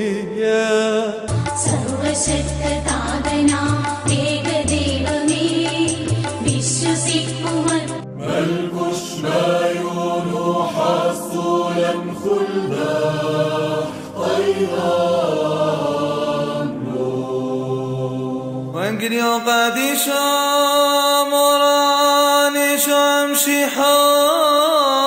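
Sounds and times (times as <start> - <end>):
person singing liturgical chant: 8.2 - 25.0.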